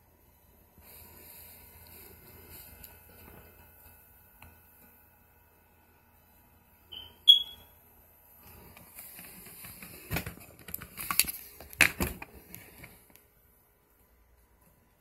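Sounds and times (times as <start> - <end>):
rustling and handling noise: 0.8 - 4.9, 8.4 - 15.0
short high electronic beeps: 6.9 - 7.7.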